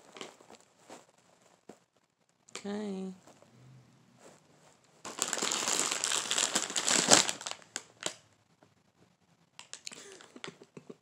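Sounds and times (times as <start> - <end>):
bag crinkling: 5.0 - 8.2.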